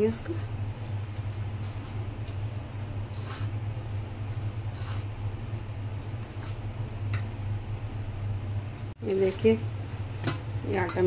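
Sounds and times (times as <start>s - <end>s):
steady low hum: 0.0s - 11.0s
hands kneading dough: 0.6s - 7.8s.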